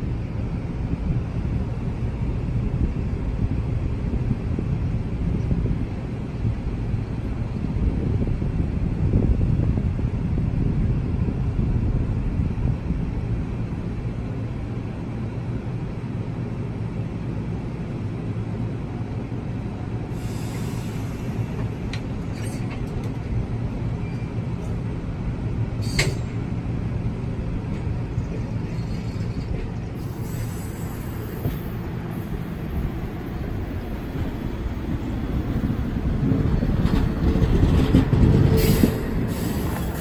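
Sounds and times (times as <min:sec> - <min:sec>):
train coach rumbling by: 0:00.0 - 0:40.0
air hiss: 0:20.1 - 0:21.6, 0:30.0 - 0:31.7.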